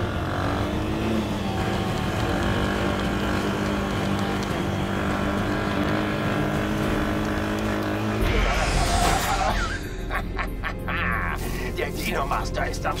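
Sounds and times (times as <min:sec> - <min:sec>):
engine running steadily: 0:00.0 - 0:13.0.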